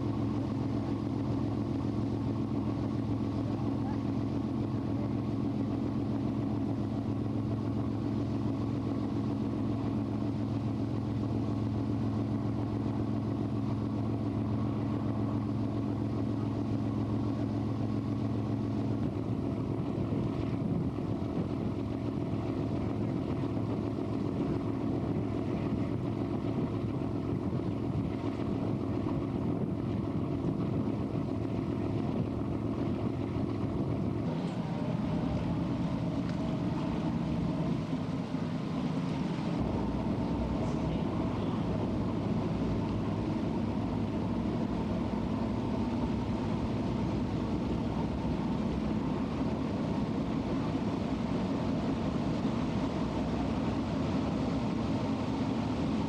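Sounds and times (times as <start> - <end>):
boat engine drone: 0.0 - 56.0
rush of wind and water: 0.0 - 56.0.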